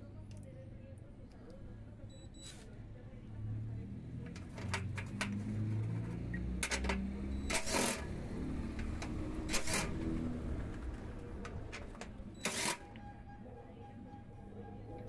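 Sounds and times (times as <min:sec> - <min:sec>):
light clicks of bit and bolts: 0:04.2 - 0:08.0.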